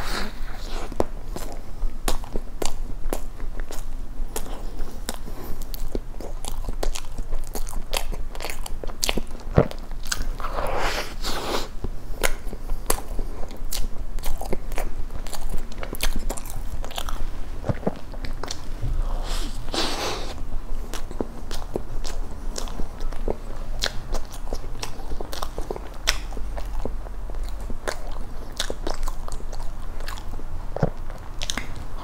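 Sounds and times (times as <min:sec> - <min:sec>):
chewing soft cake: 0:00.0 - 0:32.0.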